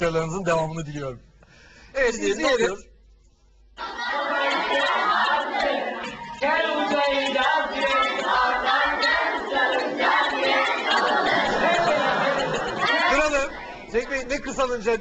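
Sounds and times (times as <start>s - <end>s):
children singing in chorus: 3.8s - 14.0s.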